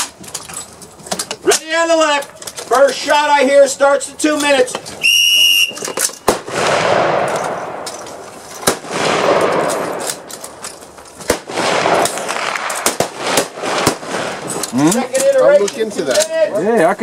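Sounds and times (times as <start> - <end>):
gunshots: 6.2 - 10.3, 11.2 - 14.6
long rolling echo: 6.3 - 14.5.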